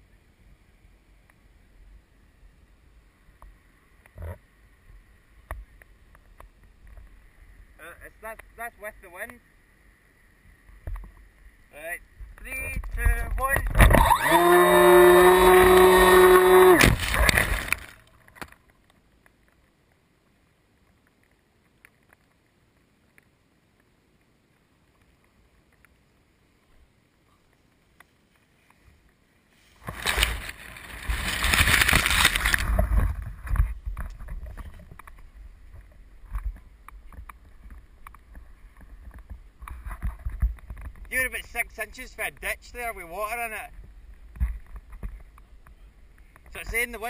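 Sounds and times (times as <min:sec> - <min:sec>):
rustling and handling noise: 0:16.8 - 0:20.0, 0:27.4 - 0:41.4.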